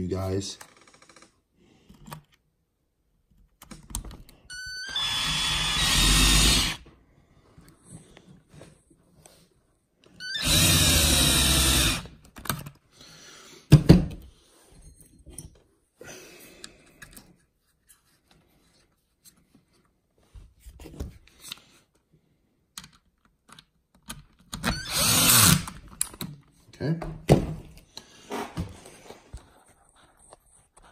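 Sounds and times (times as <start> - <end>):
cordless power driver: 4.8 - 6.8, 10.3 - 12.1, 24.6 - 25.8.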